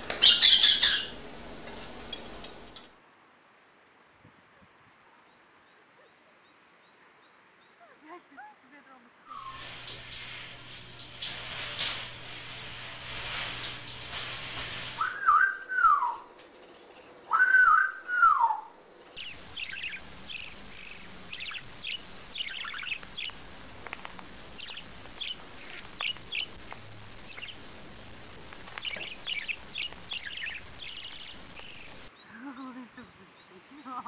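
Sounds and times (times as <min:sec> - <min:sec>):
parrot whistled calls: 0:00.2 - 0:01.1, 0:09.3 - 0:09.7, 0:15.0 - 0:16.3, 0:17.3 - 0:18.8
parakeet chirping: 0:00.2 - 0:01.2, 0:09.3 - 0:10.2, 0:15.0 - 0:23.4, 0:24.6 - 0:26.5.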